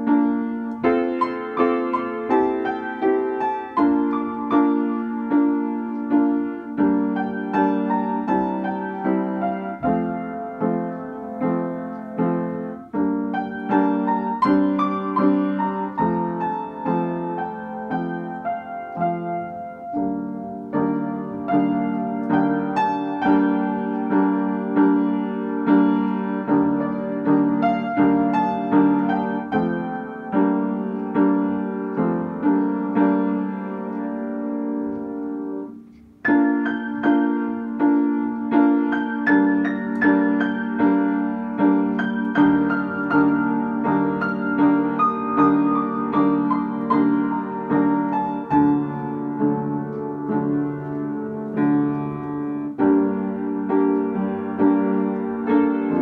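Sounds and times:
upright piano playing: 0:00.0 - 0:56.0.

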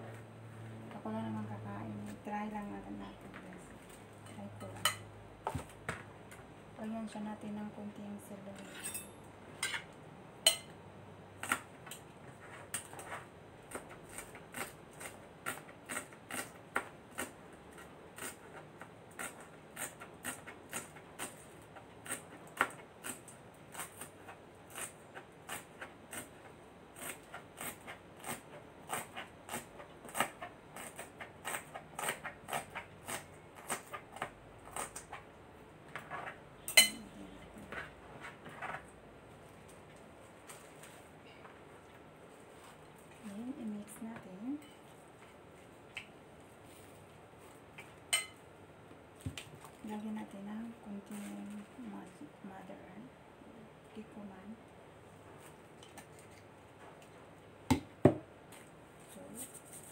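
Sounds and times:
knife chopping on cutting board: 0:57.7 - 0:58.2.

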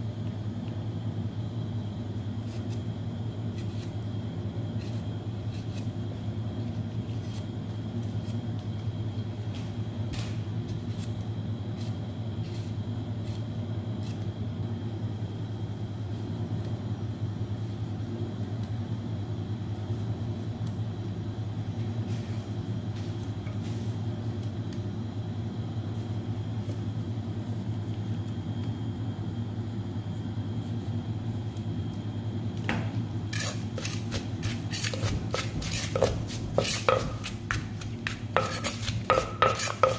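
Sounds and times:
steady low hum: 0:00.0 - 0:39.9
pestle pounding in clay mortar: 0:33.4 - 0:39.9.

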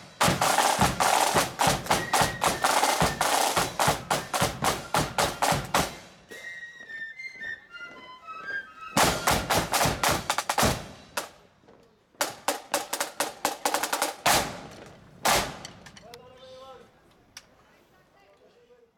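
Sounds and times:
parade side drums playing march: 0:00.0 - 0:06.6, 0:07.6 - 0:11.5, 0:12.2 - 0:16.2
high flute notes: 0:01.7 - 0:10.0.

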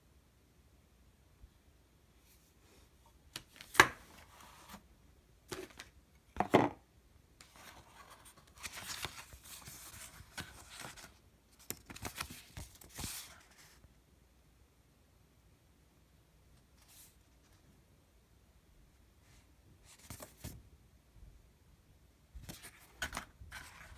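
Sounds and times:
paper sheets rustling: 0:07.5 - 0:13.8, 0:22.4 - 0:23.9.

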